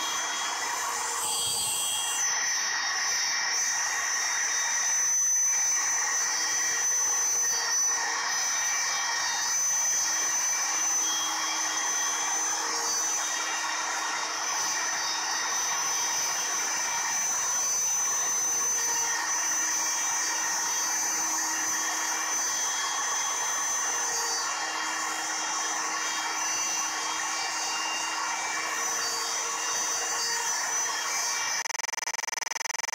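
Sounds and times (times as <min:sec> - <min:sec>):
router spindle whining: 0:00.0 - 0:32.9
faint tone: 0:31.6 - 0:32.9.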